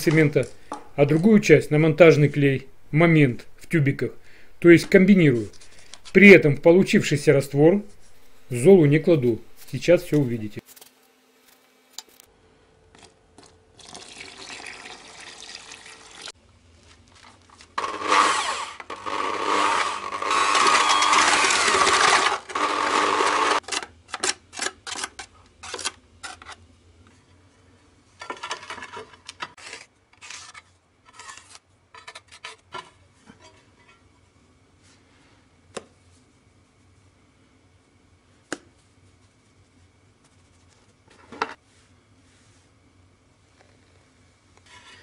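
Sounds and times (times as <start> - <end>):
electric drill mixing adhesive: 17.8 - 23.6.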